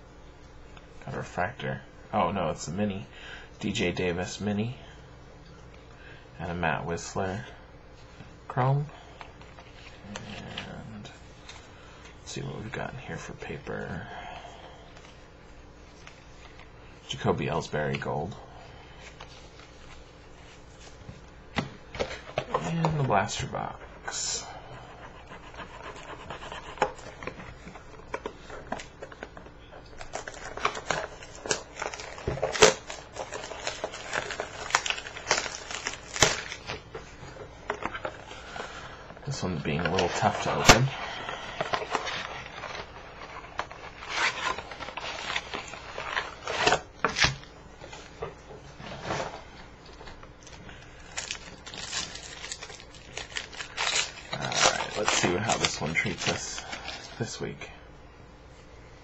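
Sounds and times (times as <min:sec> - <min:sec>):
cardboard crinkling and tearing: 0:30.0 - 0:36.9, 0:39.3 - 0:47.5, 0:51.0 - 0:57.2.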